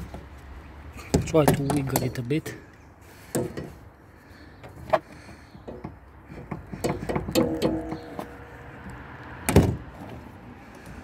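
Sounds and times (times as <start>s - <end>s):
wiper arm clicking and knocking: 1.1s - 2.2s, 4.6s - 8.3s.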